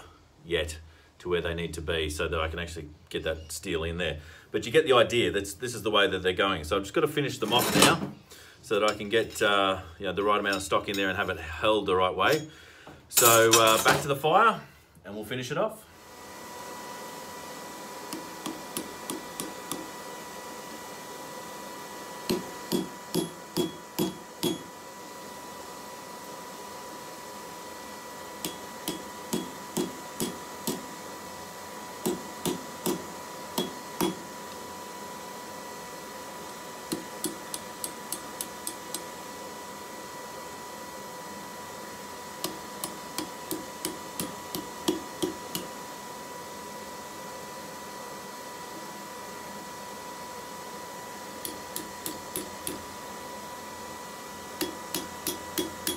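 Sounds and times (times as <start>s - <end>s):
hammer striking metal on anvil: 22.3s - 24.7s, 28.4s - 30.9s, 32.0s - 34.2s, 36.9s - 39.0s, 42.4s - 45.7s, 51.4s - 52.9s, 54.6s - 55.9s.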